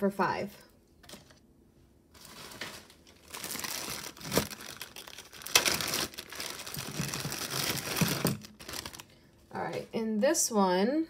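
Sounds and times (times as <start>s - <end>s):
plastic bag crinkling: 2.1s - 9.2s.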